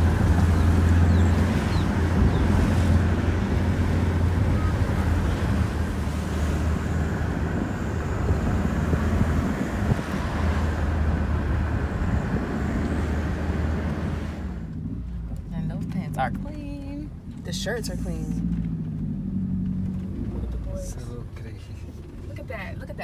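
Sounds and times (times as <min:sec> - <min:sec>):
wind rushing on microphone: 0:00.0 - 0:14.6
car engine and road drone: 0:00.0 - 0:23.0.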